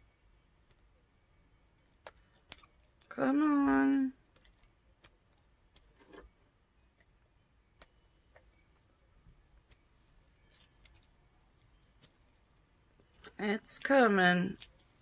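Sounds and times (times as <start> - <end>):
plastic wrapping crinkling: 9.6 - 15.0.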